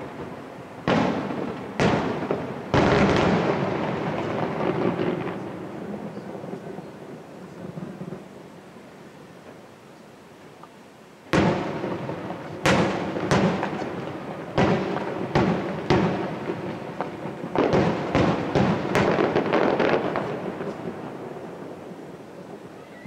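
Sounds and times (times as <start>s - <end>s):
crackling firework pops: 0.0s - 7.0s, 10.6s - 21.2s.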